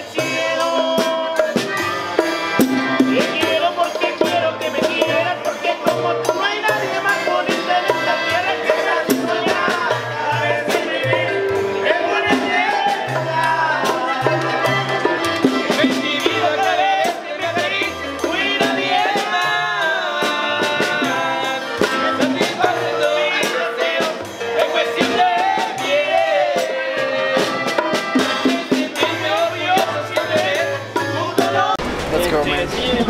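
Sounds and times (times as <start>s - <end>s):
accordion: 0.0s - 33.0s
drum kit with congas and cymbals: 0.0s - 33.0s
guitar: 0.0s - 33.0s
men singing: 0.0s - 33.0s
upright bass: 31.6s - 33.0s.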